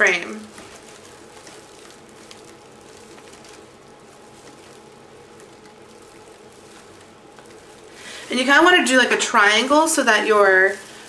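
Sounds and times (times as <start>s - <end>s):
low room hum: 0.0s - 11.0s
rustling and crinkling: 0.0s - 11.0s
small ticks: 0.5s - 8.0s.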